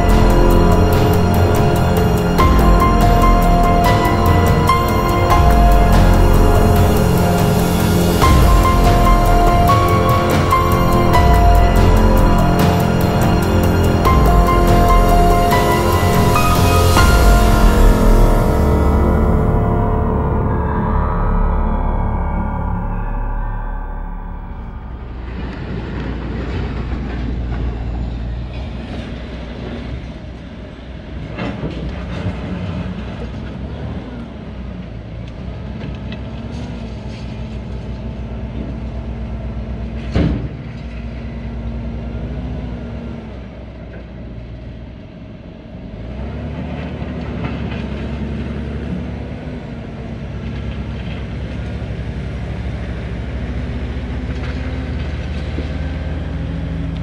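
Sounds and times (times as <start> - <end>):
sharp metallic bang: 0.0 - 26.7.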